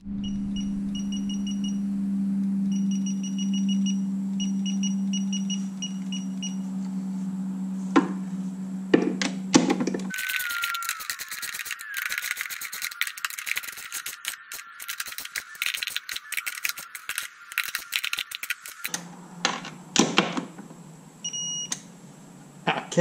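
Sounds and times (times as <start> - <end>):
short electronic beep: 0.1 - 1.9, 2.7 - 6.6
ratchet wrench clicking: 10.2 - 18.9.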